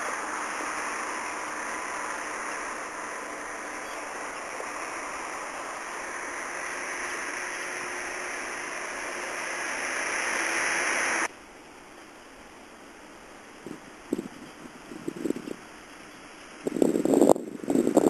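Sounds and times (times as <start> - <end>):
hiss-like rushing noise: 0.0 - 18.0.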